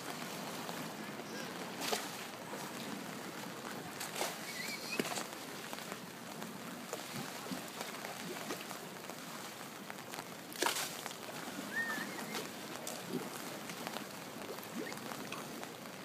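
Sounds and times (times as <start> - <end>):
water sloshing and splashing: 0.0 - 16.0
dolphin chirping whistle: 11.7 - 12.4.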